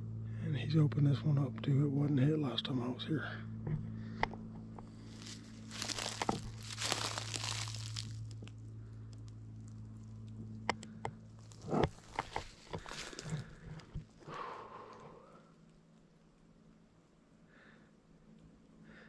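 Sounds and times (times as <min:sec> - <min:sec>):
footsteps crunching through dry leaves: 0:04.9 - 0:08.5, 0:11.4 - 0:13.6.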